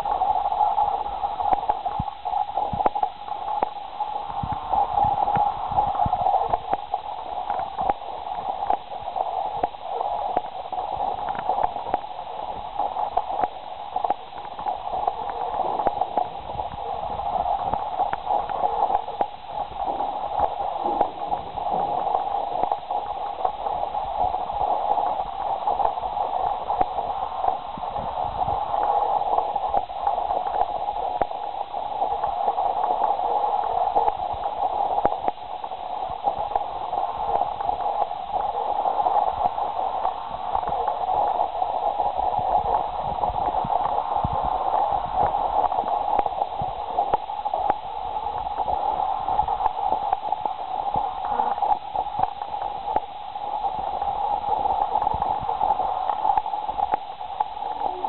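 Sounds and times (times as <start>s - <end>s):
crackling static noise: 0.0s - 58.0s
faint ticks: 1.5s - 3.8s, 11.2s - 12.0s.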